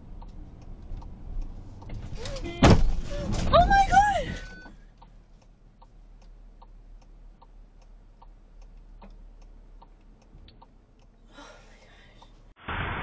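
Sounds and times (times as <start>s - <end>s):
car turn signal ticking: 0.0s - 2.6s, 4.7s - 11.2s.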